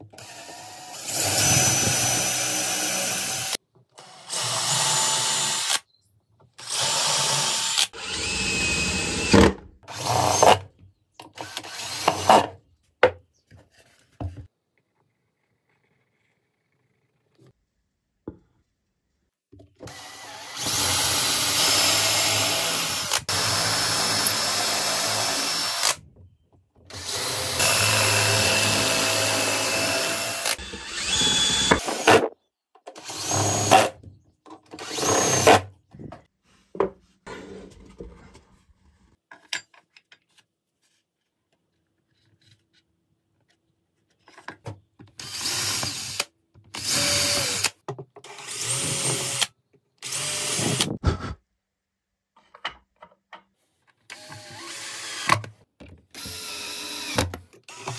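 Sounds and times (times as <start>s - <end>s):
cordless drill boring wood: 0.1s - 5.8s, 6.6s - 10.6s, 11.4s - 12.5s, 19.8s - 26.0s, 26.9s - 32.2s, 33.0s - 33.9s, 34.7s - 35.6s, 45.2s - 51.0s, 54.1s - 55.5s, 56.1s - 57.9s
drill driving screws: 0.2s - 5.8s, 6.6s - 10.6s, 11.4s - 12.5s, 19.9s - 26.0s, 26.9s - 32.3s, 33.0s - 33.9s, 34.8s - 35.6s, 45.2s - 51.0s, 54.1s - 55.5s, 56.1s - 57.9s.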